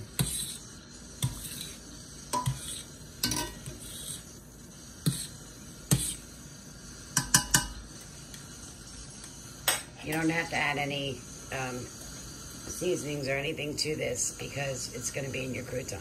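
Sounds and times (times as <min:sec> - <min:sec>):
metal server clinking against pot: 0:03.2 - 0:03.7.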